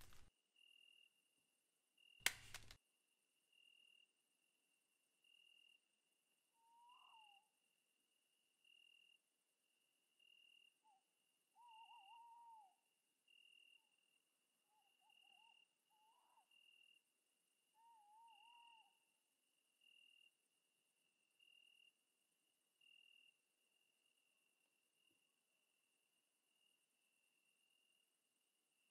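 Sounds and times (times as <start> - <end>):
night bird warbling calls: 6.5 - 7.6, 8.6 - 9.2, 10.1 - 19.2, 19.8 - 20.4, 22.8 - 23.4
insect chirping: 22.8 - 25.2.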